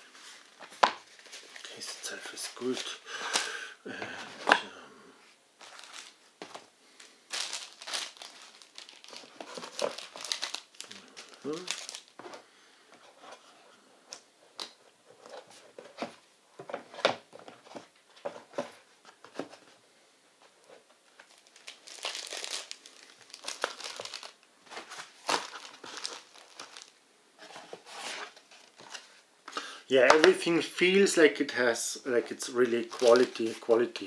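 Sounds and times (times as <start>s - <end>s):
paper and cardboard crinkling: 0.0s - 3.5s, 5.6s - 12.4s, 20.7s - 29.2s, 32.2s - 34.0s.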